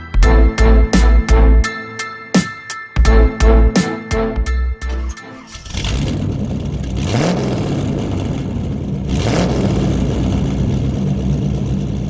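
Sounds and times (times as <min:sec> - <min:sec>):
car engine idling and revving: 0:04.8 - 0:12.0.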